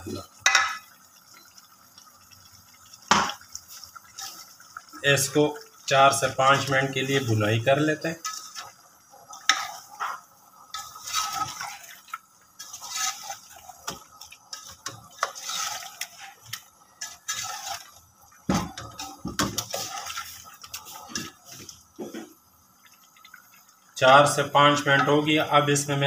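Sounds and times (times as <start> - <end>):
meat sizzling in hot oil: 0.0 - 26.0
spatula scraping a pot: 8.2 - 8.7, 9.4 - 18.0, 18.8 - 21.7.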